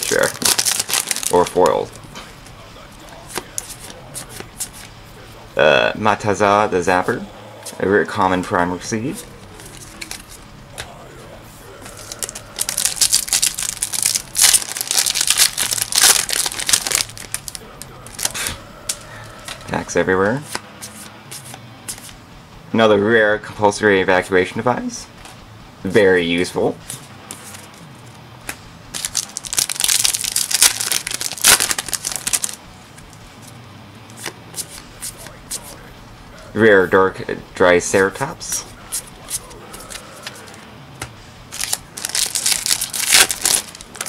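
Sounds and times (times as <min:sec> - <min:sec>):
foil wrapper crinkling and tearing: 0:00.0 - 0:01.9, 0:12.0 - 0:19.0, 0:29.0 - 0:32.6, 0:41.5 - 0:44.0
cards clicking: 0:09.5 - 0:10.9.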